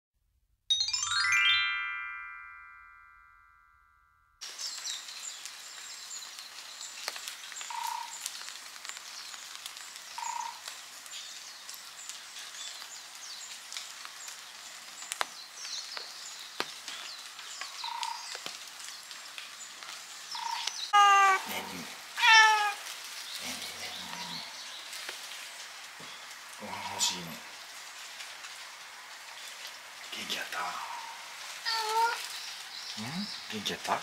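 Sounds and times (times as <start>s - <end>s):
chime: 0.7s - 4.4s
rain falling: 4.4s - 34.0s
small birds chirping: 4.4s - 34.0s
mid-pitched call: 21.0s - 22.8s.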